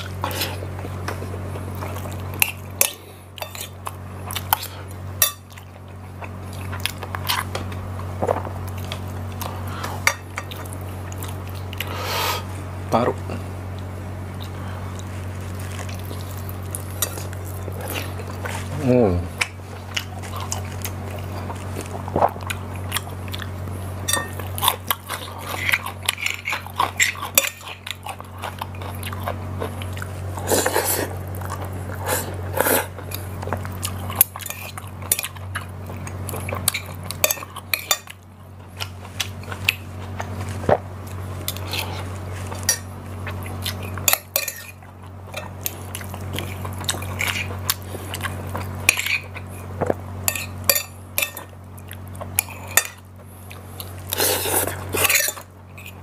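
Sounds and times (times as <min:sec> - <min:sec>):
chewing: 0:00.0 - 0:12.0, 0:13.7 - 0:18.8, 0:19.4 - 0:56.0
steady low hum: 0:00.0 - 0:56.0
cutlery clinking on a plate: 0:24.1 - 0:24.4.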